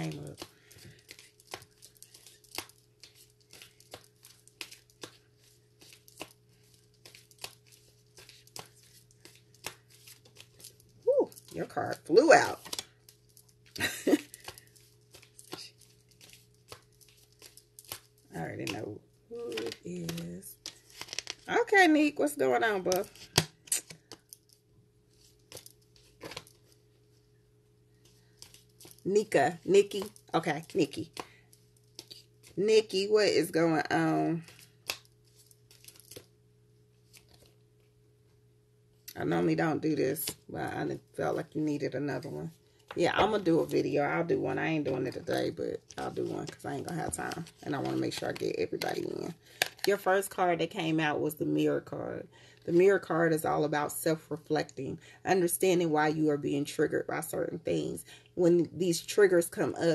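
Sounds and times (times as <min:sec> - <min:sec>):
cards being shuffled: 0:00.0 - 0:21.5, 0:22.8 - 0:26.8, 0:28.0 - 0:32.6, 0:34.4 - 0:36.4, 0:37.0 - 0:37.6, 0:44.8 - 0:50.1
low steady hum: 0:00.0 - 0:59.9.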